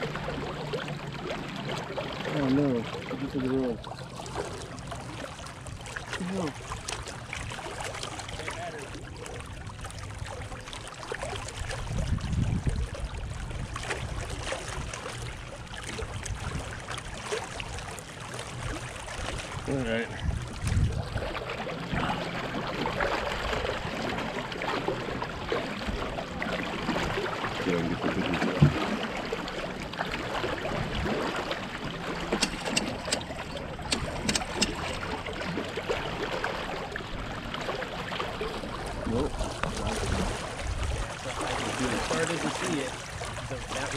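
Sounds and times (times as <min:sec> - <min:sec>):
water splashing along hull: 0:00.0 - 0:43.9
wind rumbling on microphone: 0:11.3 - 0:15.0, 0:19.5 - 0:24.4, 0:38.7 - 0:43.9
thump: 0:28.6 - 0:28.8
sharp clicks: 0:32.4 - 0:35.0.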